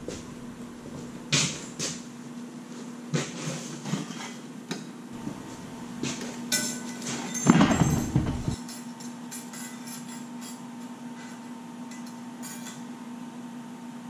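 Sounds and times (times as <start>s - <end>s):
metallic clatter: 6.6s - 8.8s.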